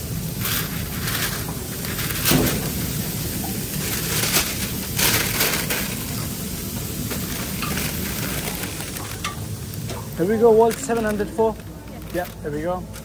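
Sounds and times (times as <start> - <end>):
paper bag crinkling: 0.0 - 13.0.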